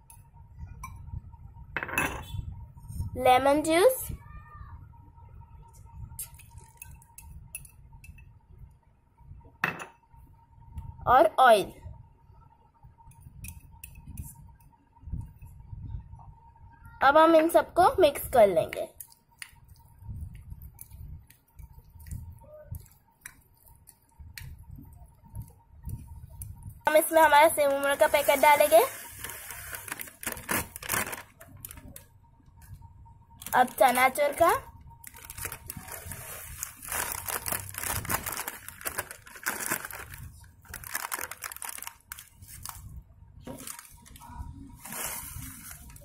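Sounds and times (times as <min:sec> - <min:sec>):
plastic packet crinkling: 0:27.6 - 0:32.0, 0:35.0 - 0:42.8
crunchy snacks falling into glass bowl: 0:36.6 - 0:42.3.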